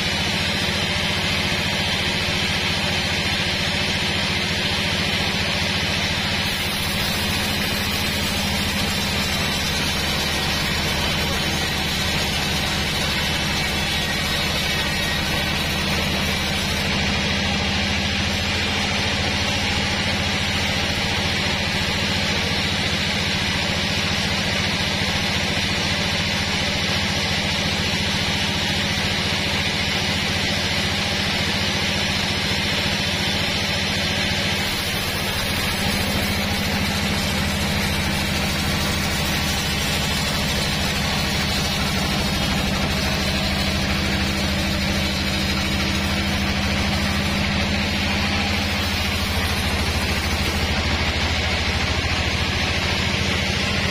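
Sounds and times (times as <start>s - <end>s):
band saw cutting through log: 0.0s - 53.9s.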